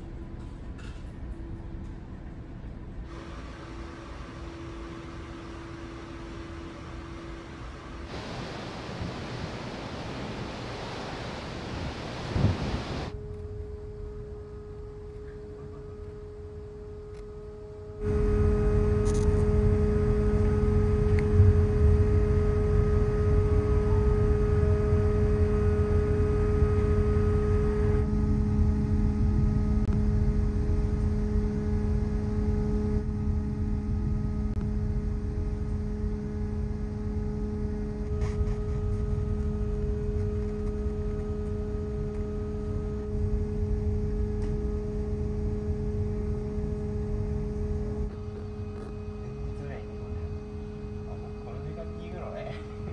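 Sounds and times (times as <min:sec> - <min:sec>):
ferry machinery humming: 0:03.0 - 0:13.2.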